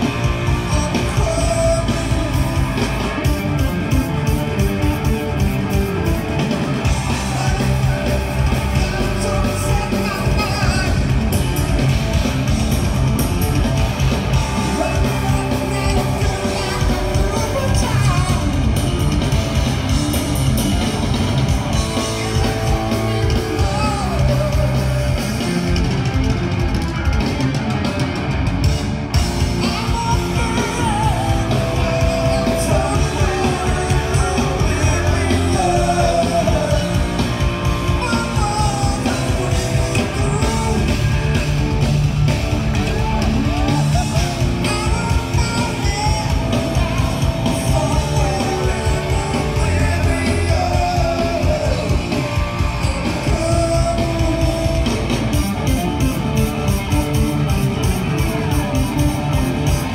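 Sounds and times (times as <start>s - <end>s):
drum kit: 0.0s - 59.9s
electric bass: 0.0s - 59.9s
electric guitar: 0.0s - 59.9s
person singing: 29.6s - 41.3s.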